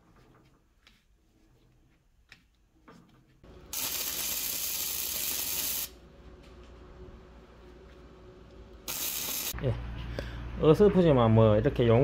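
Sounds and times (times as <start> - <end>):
welding arc crackling and hissing: 3.7 - 6.0, 8.9 - 9.6.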